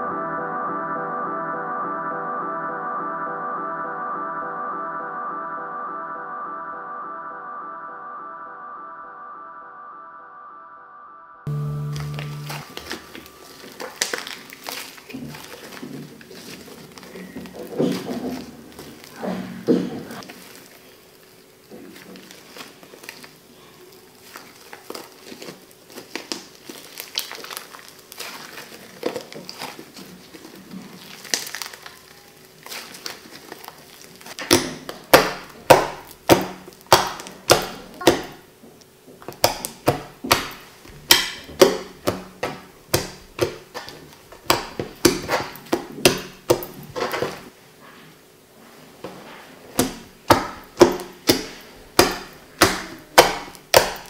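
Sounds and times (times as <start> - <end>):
slime crackling when stretched: 11.9 - 19.2, 20.2 - 38.4
slime popping when pressed: 12.0 - 16.5, 34.2 - 38.4, 39.3 - 46.7, 49.8 - 54.0.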